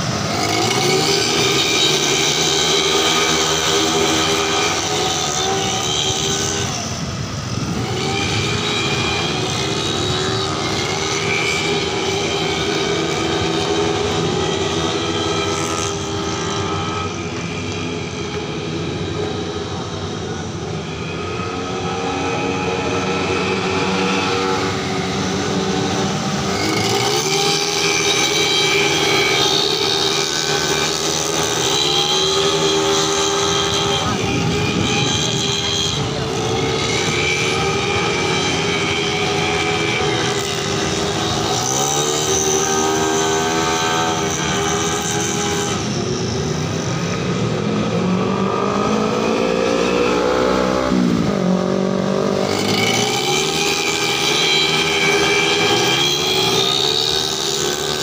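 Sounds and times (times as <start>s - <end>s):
racing scooter engines at high revs: 0.0s - 58.0s.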